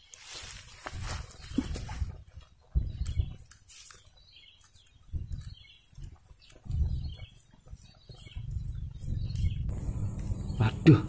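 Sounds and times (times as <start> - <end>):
low rumbling thuds: 9.5 - 11.0.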